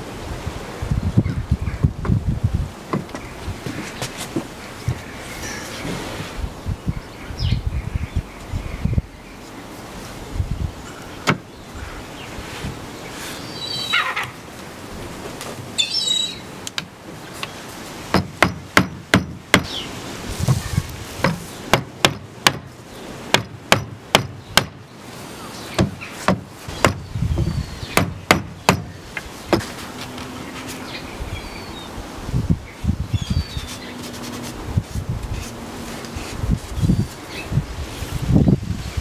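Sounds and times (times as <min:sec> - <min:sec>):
birds chirping: 0:02.8 - 0:09.8, 0:10.6 - 0:14.6, 0:15.7 - 0:16.6, 0:19.5 - 0:34.5, 0:35.4 - 0:37.7
rubber mallet knocking on wood: 0:18.1 - 0:19.7, 0:25.8 - 0:28.9.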